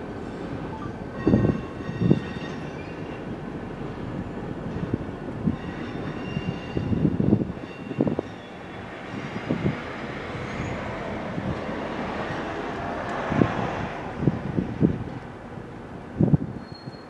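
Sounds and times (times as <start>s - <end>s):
train rumbling: 0.0s - 17.0s
faint high squeal: 16.6s - 17.0s.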